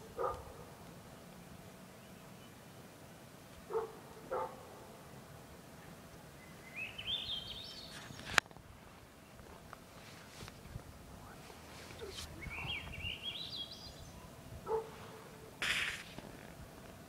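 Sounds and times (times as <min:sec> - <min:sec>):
sharp click: 0:15.6 - 0:16.3.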